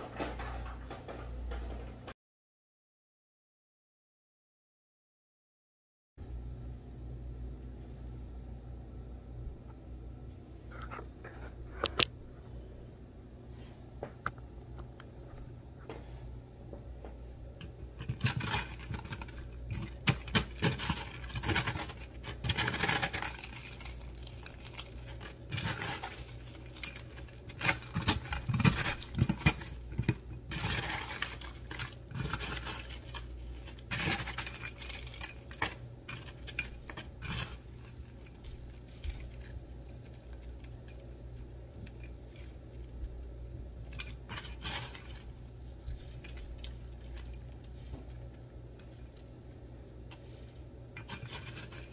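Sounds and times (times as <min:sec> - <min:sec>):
ice crunching and crackling: 0:17.6 - 0:51.9.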